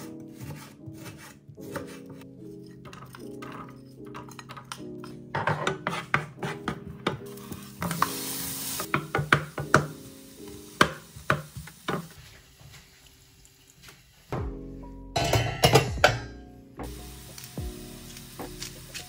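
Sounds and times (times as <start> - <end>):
wooden spatula scraping frying pan: 0.0 - 8.2.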